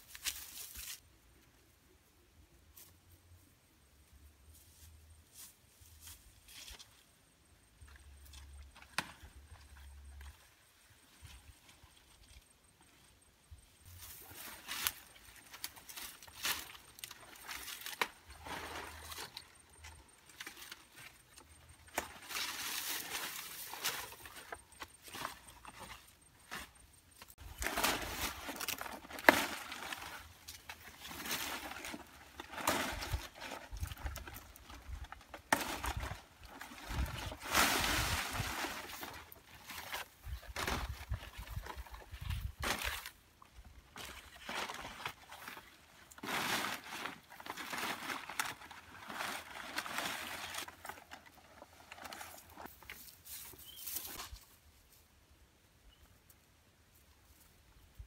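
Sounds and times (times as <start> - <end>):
dry leaves rustling: 0.0 - 1.0, 13.9 - 26.7, 27.3 - 43.2, 43.9 - 54.9.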